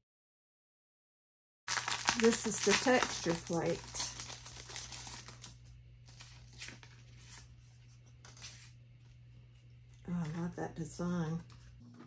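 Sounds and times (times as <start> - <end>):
plastic sleeve crinkling: 1.7 - 9.0
steady low hum: 1.8 - 12.0.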